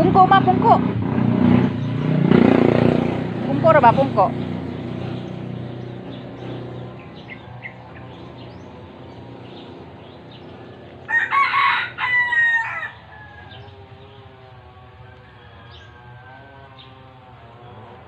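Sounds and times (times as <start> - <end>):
rooster crowing: 11.0 - 17.8.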